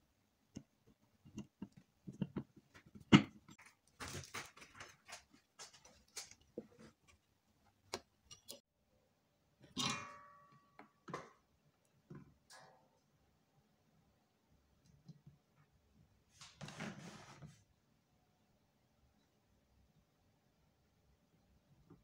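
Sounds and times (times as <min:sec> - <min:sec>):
screwdriver and metal parts clicking: 0:08.3 - 0:08.6.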